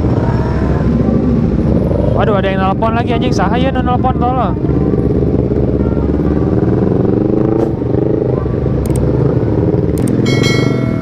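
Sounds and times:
motorcycle engines running: 0.0s - 11.0s
ringing chime: 10.2s - 11.0s.

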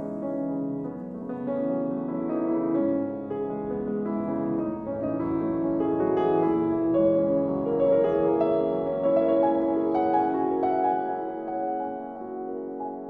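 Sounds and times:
gentle piano sustained notes: 0.0s - 13.0s.

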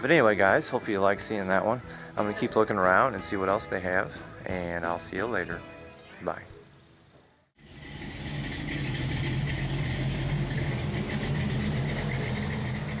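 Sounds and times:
vehicle engine idling: 7.6s - 13.0s.

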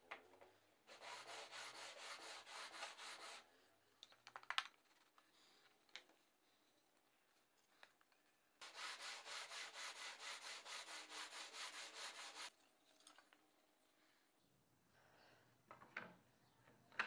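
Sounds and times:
wood rasping on sandpaper: 0.9s - 3.5s, 8.6s - 12.5s.

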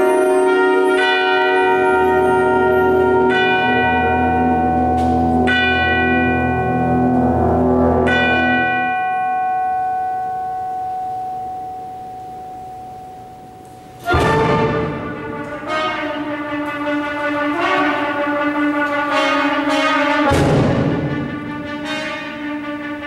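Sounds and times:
concert band holding low chord: 0.0s - 8.9s
tubular bells ringing: 0.0s - 23.0s.

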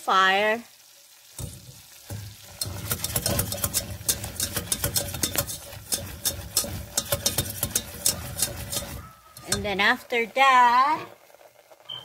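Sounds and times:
soft sizzle: 0.0s - 12.0s
whisk scraping against a pot: 1.4s - 10.0s.

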